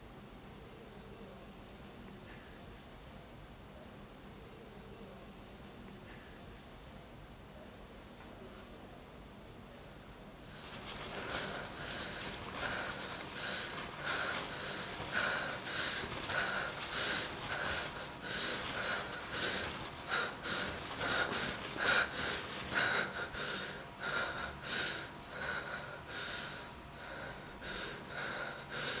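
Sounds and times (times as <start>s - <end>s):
heavy rhythmic breathing: 10.5s - 29.0s.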